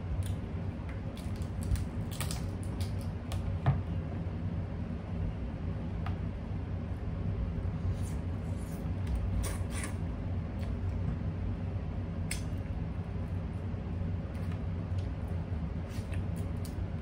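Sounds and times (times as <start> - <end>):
steady low hum: 0.0 - 17.0
crab shells cracking: 1.1 - 3.4.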